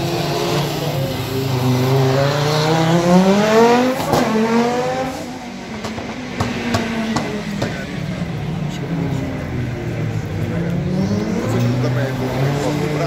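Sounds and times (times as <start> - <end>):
rally car engine accelerating: 0.0 - 13.0
exhaust pop: 4.0 - 4.4.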